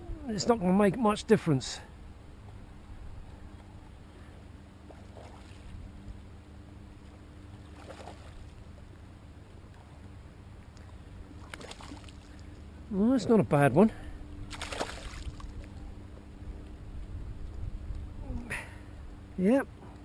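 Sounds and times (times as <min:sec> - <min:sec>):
distant boat engine hum: 0:00.0 - 0:20.0
soft water splashes: 0:03.3 - 0:06.3, 0:06.9 - 0:09.0, 0:09.6 - 0:12.7, 0:14.0 - 0:16.0.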